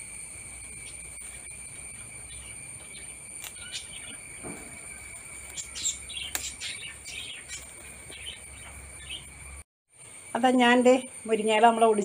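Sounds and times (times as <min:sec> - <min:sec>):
insects droning: 0:00.0 - 0:12.0
birds chirping: 0:00.4 - 0:09.6.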